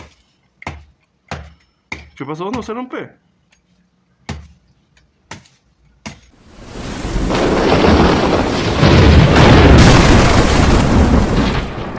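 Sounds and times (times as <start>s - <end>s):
rain: 6.4s - 11.9s
thunder: 6.7s - 11.9s.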